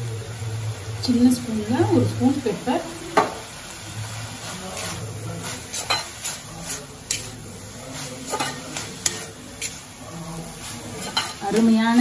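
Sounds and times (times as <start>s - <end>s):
light sizzle: 0.0s - 12.0s
spoon scraping in frying pan: 4.2s - 12.0s.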